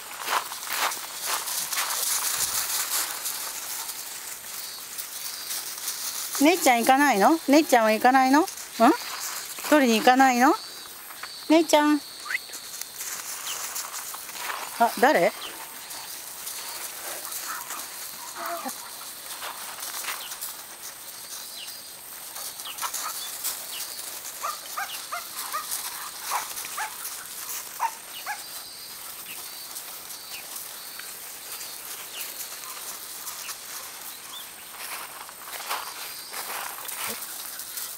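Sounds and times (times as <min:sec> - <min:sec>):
paws scuffling on gravel: 0:00.0 - 0:37.9
dogs crying high-pitched: 0:17.5 - 0:18.9.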